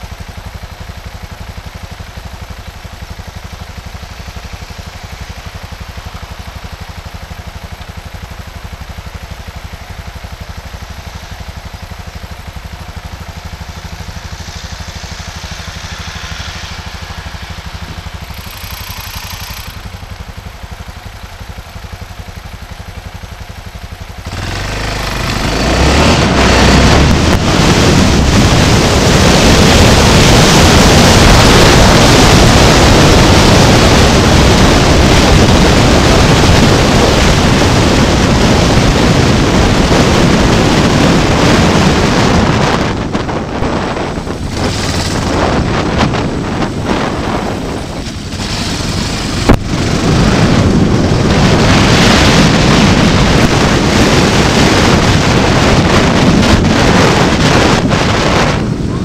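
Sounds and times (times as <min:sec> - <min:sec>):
passing traffic: 0:00.0 - 0:59.0
vehicle engine idling: 0:00.0 - 0:59.0
vehicle pulling away: 0:11.1 - 0:21.3, 0:24.0 - 0:59.0
wind noise on microphone: 0:24.3 - 0:59.0.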